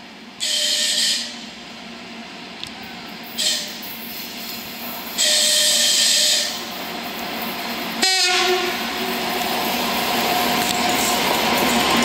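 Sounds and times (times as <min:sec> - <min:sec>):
diesel locomotive engine running: 0:00.0 - 0:12.0
locomotive horn blast: 0:03.4 - 0:03.8, 0:05.2 - 0:06.7, 0:08.0 - 0:08.9.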